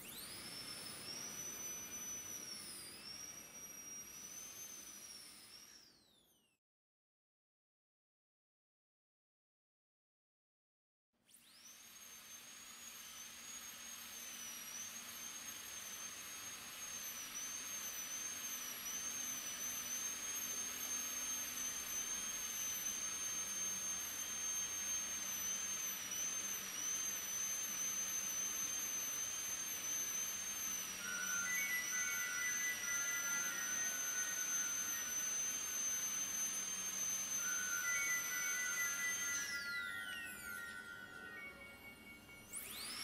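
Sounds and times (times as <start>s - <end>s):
dental drill whine: 0.0s - 6.6s, 11.3s - 43.0s.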